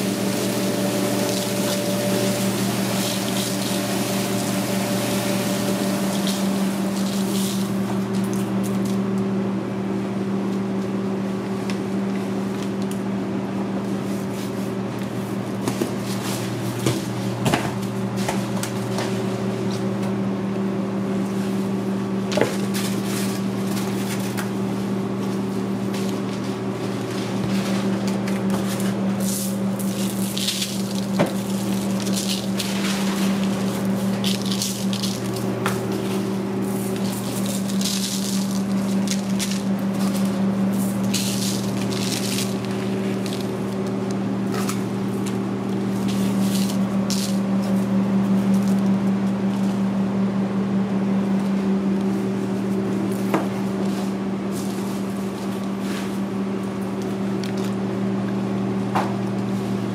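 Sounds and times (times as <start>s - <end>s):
kitchen equipment humming: 0.0s - 59.9s
seasoning rustling on meat: 29.4s - 44.0s.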